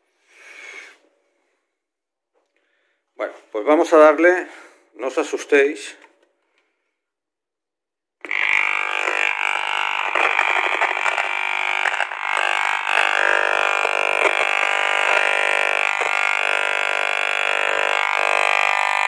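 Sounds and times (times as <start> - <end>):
steady electronic buzz: 8.2 - 19.0.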